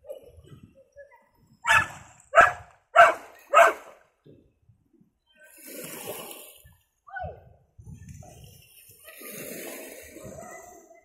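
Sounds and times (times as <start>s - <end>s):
dog barking: 1.6s - 3.9s.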